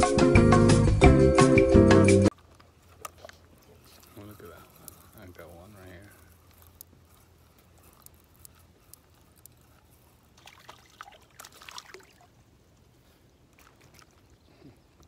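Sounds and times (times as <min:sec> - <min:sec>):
water splashing and dripping: 0:10.3 - 0:15.0.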